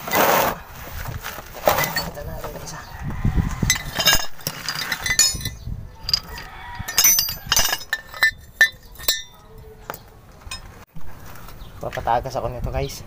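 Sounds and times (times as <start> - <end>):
metal tools clinking on metal: 1.6 - 2.7, 3.7 - 10.8.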